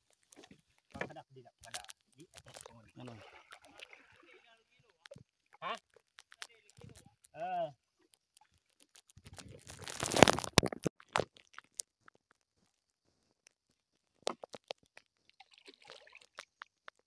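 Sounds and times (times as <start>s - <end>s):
water sloshing: 0.0s - 11.6s, 15.2s - 17.0s
rustling and crackling in canoe: 0.0s - 17.0s.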